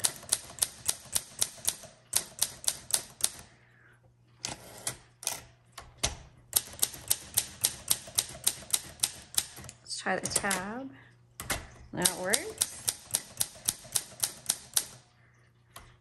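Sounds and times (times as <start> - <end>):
typewriter keys striking: 0.0 - 3.4, 6.0 - 10.7, 11.4 - 15.0.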